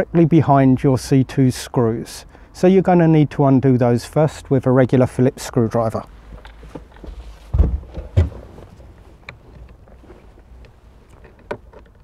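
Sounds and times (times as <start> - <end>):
dull thumps: 6.6 - 10.1.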